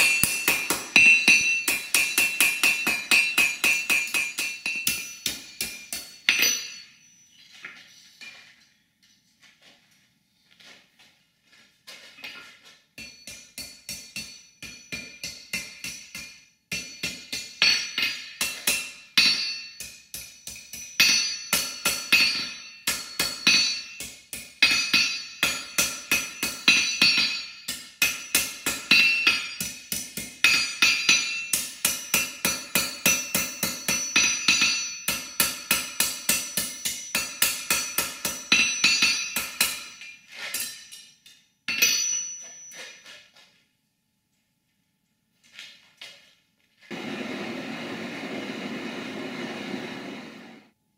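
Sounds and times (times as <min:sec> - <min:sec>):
hammer striking steel on anvil: 0:00.0 - 0:07.2, 0:13.0 - 0:43.2.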